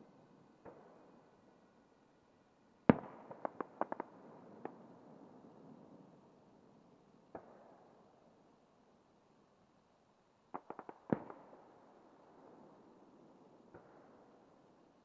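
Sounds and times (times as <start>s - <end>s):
distant fireworks bangs: 2.9s - 4.8s
fireworks cracks: 2.9s - 4.8s.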